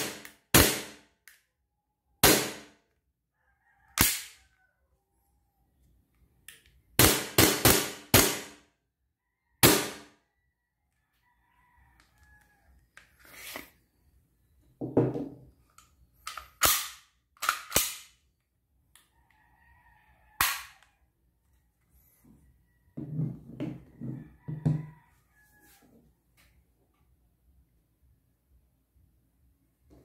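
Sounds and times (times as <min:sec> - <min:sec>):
knocks on wooden table: 0:14.8 - 0:15.4, 0:23.0 - 0:24.9
pistol mechanism clicking: 0:15.8 - 0:18.2.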